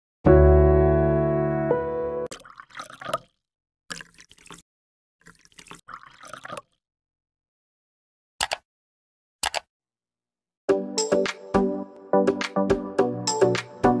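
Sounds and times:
liquid drip and splash effects: 2.3s - 4.6s, 5.2s - 6.8s
mouse clicks: 8.4s - 8.6s, 9.4s - 9.7s.

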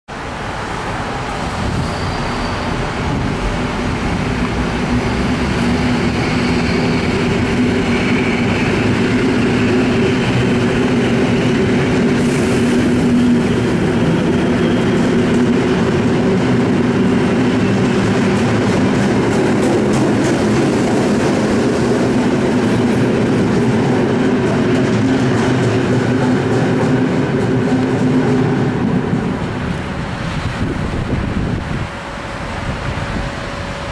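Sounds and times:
electric train running past: 0.1s - 33.9s.

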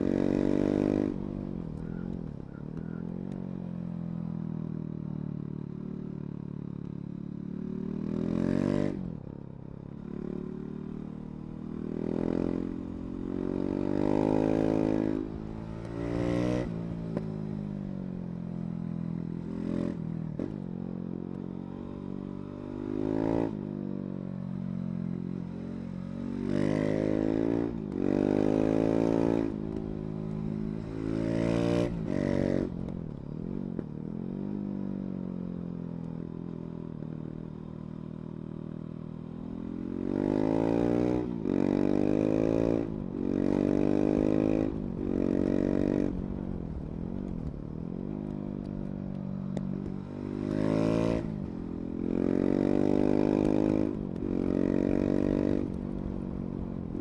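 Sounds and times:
motorcycle engine revving: 49.2s - 57.0s.

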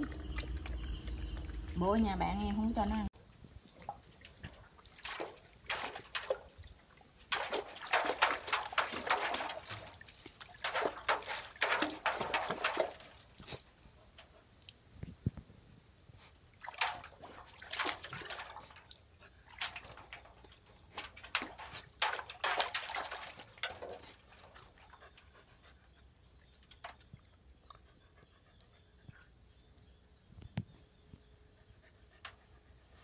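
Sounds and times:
puppy splashing in water: 0.0s - 3.1s, 3.7s - 14.8s, 16.5s - 25.3s.

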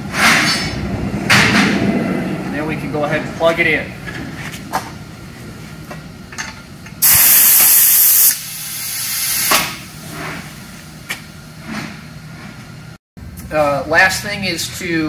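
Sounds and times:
compressed air hissing: 7.0s - 9.7s.

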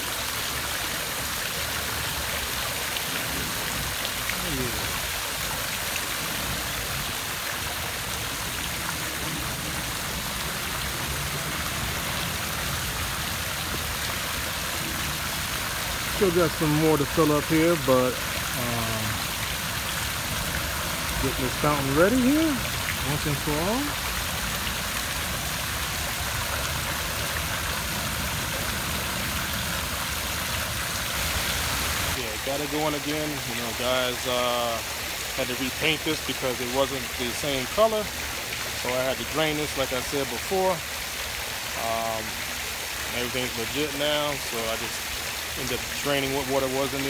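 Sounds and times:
water splashing into fountain basin: 0.0s - 47.0s.

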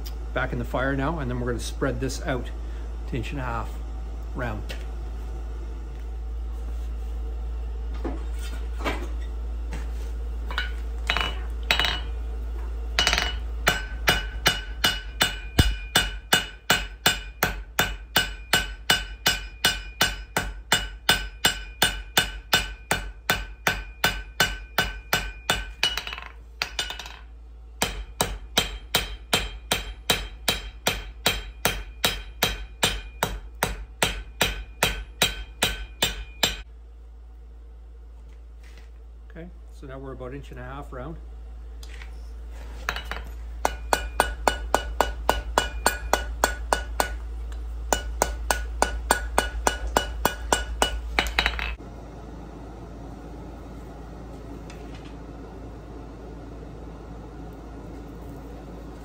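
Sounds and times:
hammer striking steel on anvil: 10.5s - 12.2s, 13.0s - 36.7s, 42.9s - 51.8s.

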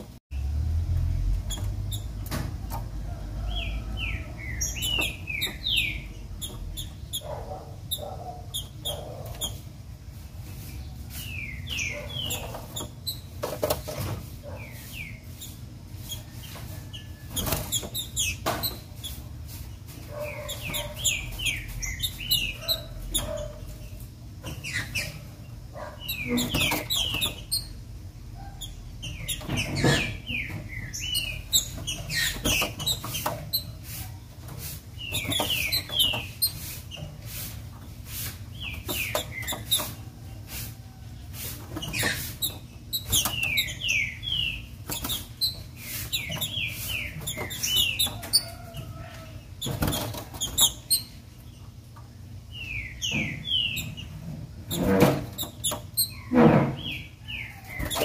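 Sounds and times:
bird chirping: 3.4s - 9.7s, 10.6s - 13.8s, 20.1s - 33.8s, 34.9s - 37.1s, 38.5s - 40.5s, 41.7s - 51.8s, 52.5s - 58.0s
bird hopping and flapping: 29.0s - 40.8s, 44.6s - 51.2s.

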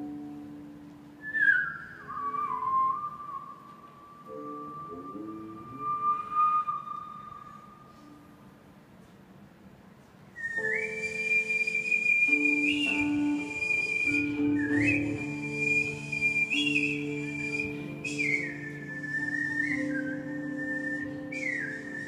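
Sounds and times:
plucked zither notes: 0.0s - 1.3s, 11.2s - 22.0s
person whistling: 1.2s - 8.3s, 10.4s - 22.0s.

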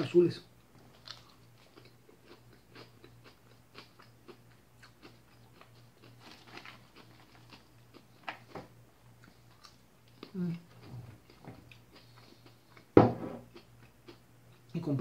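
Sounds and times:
low steady hum: 0.0s - 15.0s
chewing and crunching: 0.7s - 14.8s.

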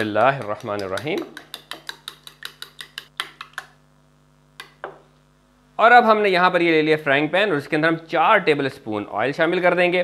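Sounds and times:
eggs beaten in a bowl: 0.0s - 3.8s.

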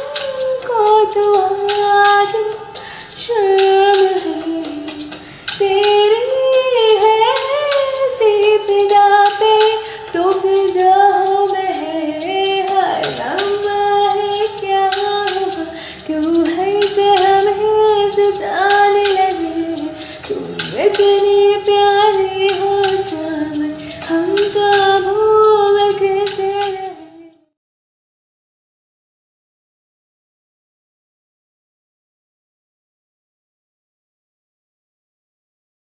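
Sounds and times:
woman singing: 0.0s - 27.5s.

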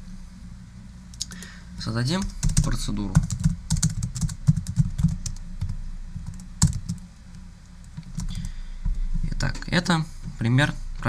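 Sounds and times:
typing on computer keyboard: 2.2s - 7.0s, 8.0s - 8.5s.

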